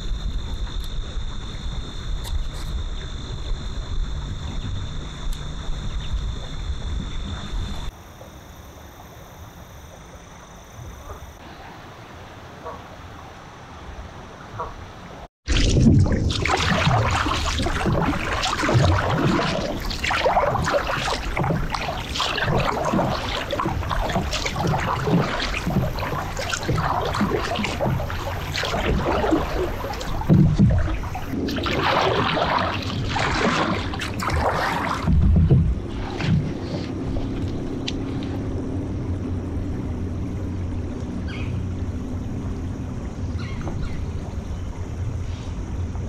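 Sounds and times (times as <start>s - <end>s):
kayak paddle splashing in water: 15.4s - 44.5s.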